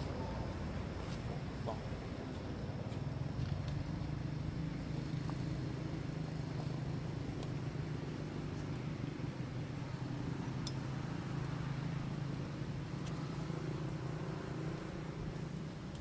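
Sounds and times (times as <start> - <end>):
faint high ticks: 10.6 - 10.8.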